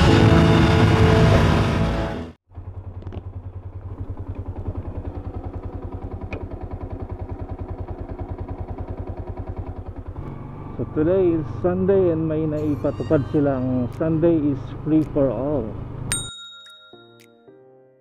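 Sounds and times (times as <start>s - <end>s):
motorcycle engine idling: 2.5s - 12.6s.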